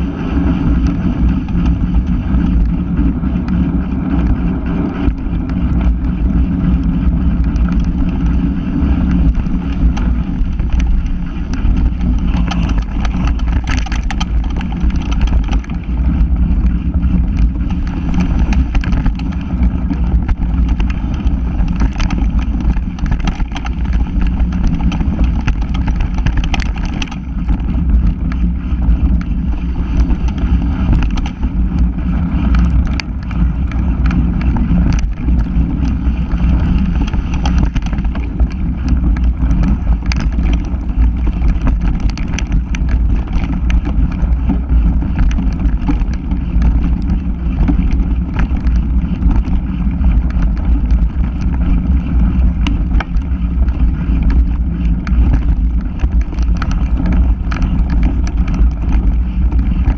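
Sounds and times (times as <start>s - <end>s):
bike clicks and rattles: 0.0s - 59.9s
bike tyres rolling on dirt: 0.0s - 59.9s
wind buffeting microphone: 0.0s - 59.9s.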